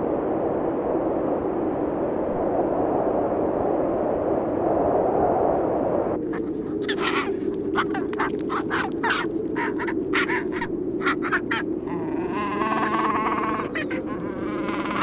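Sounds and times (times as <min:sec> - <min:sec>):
penguin braying call: 0:06.8 - 0:15.0
penguins squawking: 0:06.8 - 0:15.0.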